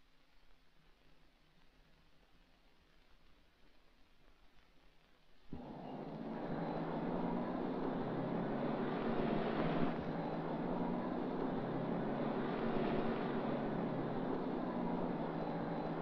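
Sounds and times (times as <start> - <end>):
city traffic rumble: 5.5 - 16.0.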